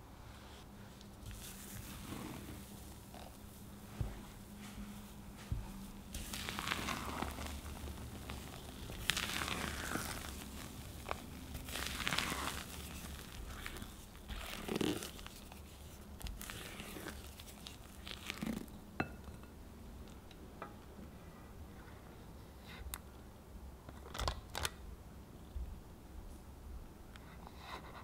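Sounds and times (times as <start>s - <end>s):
wet batter squelches: 1.0s - 18.8s.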